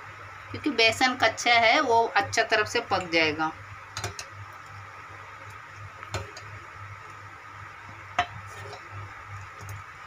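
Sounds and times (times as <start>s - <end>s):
steady background hum: 0.0s - 10.0s
ladle stirring in metal pot: 3.9s - 4.8s, 5.4s - 6.8s, 8.1s - 9.9s
ladle knocking against pot: 8.2s - 8.8s.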